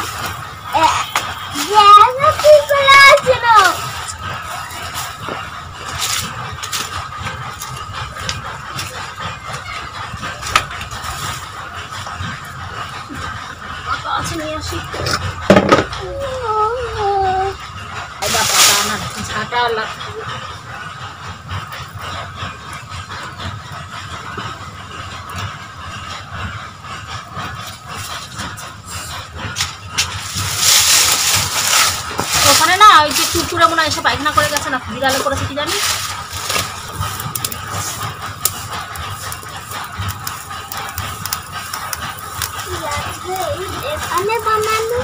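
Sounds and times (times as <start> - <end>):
fire crackling: 0.0 - 45.0
stick poking fire: 1.1 - 9.6, 10.2 - 11.6, 27.6 - 45.0.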